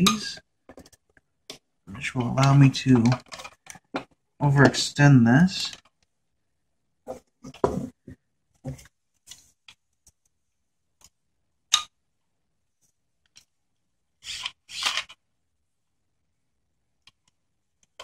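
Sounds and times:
plastic parts clicking: 0:02.2 - 0:04.2, 0:14.2 - 0:15.2.

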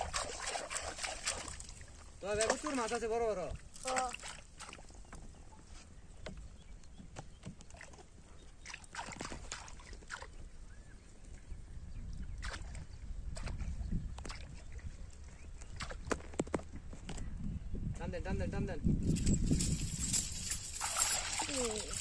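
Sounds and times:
water splashing: 0:00.0 - 0:03.0, 0:19.6 - 0:22.0.

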